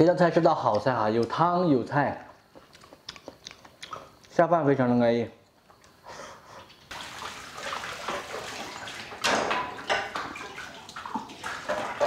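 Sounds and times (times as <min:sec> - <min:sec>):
water splashing in sink: 0:06.9 - 0:12.0
crockery clinking: 0:09.2 - 0:10.4.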